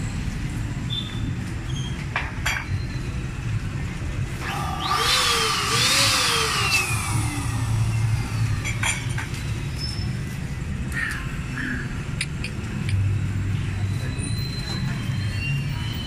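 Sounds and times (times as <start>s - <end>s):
small motor revving and whining: 4.4s - 8.8s
low background hum: 4.4s - 10.3s.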